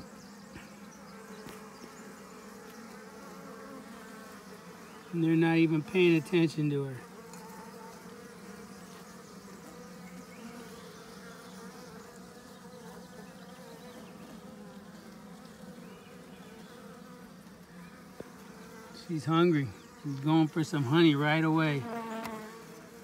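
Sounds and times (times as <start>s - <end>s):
bees buzzing: 0.0s - 23.0s.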